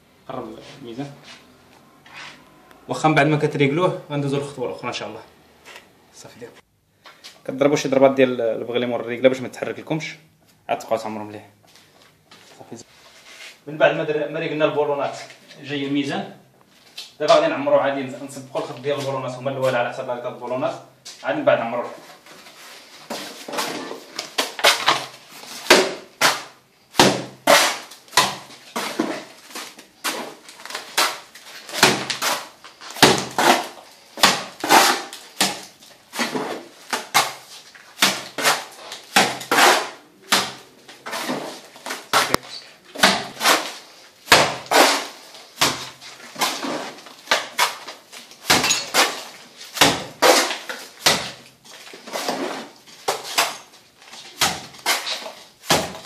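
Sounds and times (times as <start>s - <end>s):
trowel slapping wet mortar: 23.1s - 56.0s.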